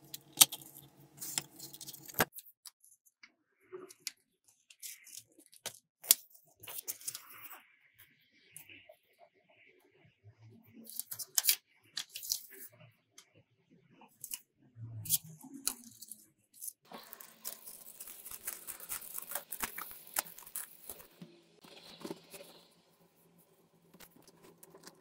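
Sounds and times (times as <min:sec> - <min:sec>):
paper rustling and crinkling: 0:00.1 - 0:02.5, 0:16.9 - 0:22.7, 0:23.9 - 0:25.0.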